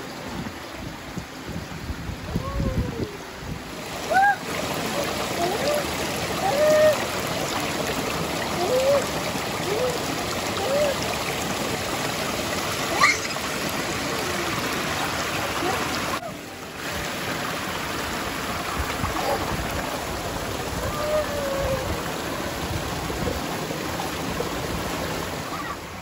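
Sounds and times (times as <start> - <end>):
child calling out: 2.3 - 3.2, 5.4 - 7.1, 8.6 - 11.1, 12.9 - 13.5, 20.8 - 22.0
waterfall pouring into pool: 2.4 - 26.0.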